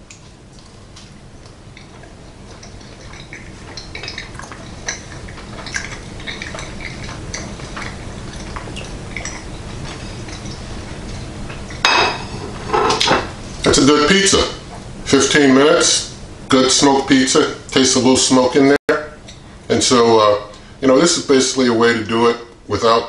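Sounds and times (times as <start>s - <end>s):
person chewing: 0.0s - 11.8s.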